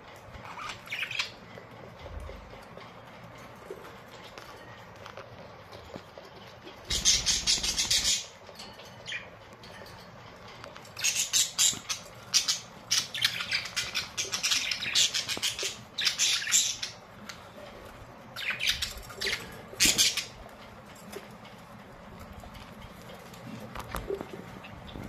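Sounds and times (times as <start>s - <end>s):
budgerigars chattering and squawking: 0.4s - 1.4s, 6.8s - 8.4s, 11.0s - 17.4s, 18.3s - 20.4s.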